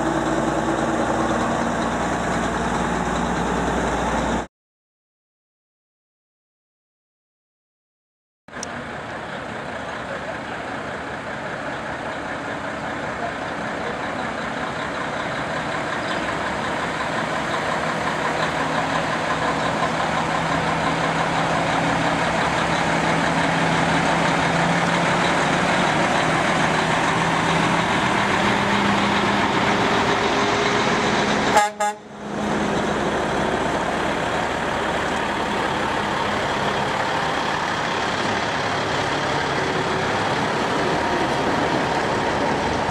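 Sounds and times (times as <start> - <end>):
diesel trucks driving past: 0.0 - 4.5, 8.5 - 42.9.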